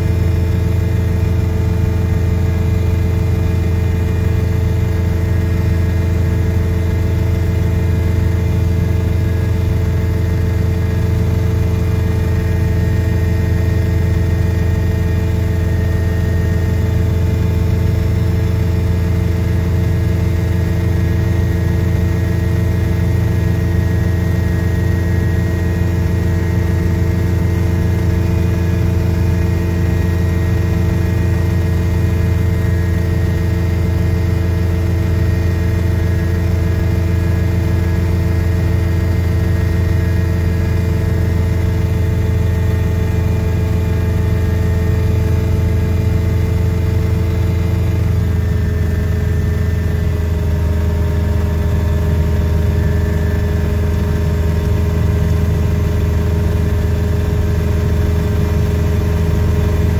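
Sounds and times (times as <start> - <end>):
small petrol engine droning: 0.0 - 59.9.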